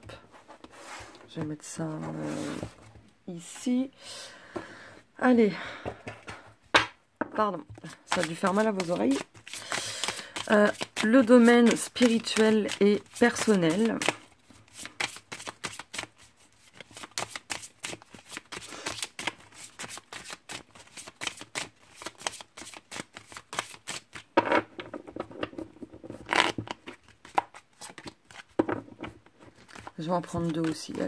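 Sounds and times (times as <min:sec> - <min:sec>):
cards being shuffled: 0:07.8 - 0:24.3, 0:26.1 - 0:31.0.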